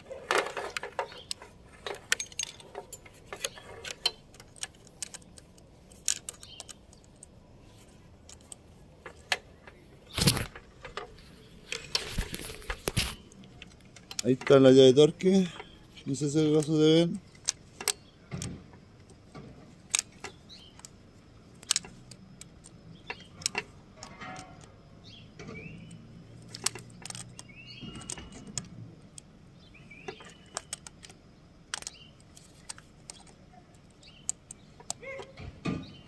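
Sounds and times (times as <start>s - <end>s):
metallic clicks and clinks: 0.0s - 7.4s, 8.2s - 29.3s.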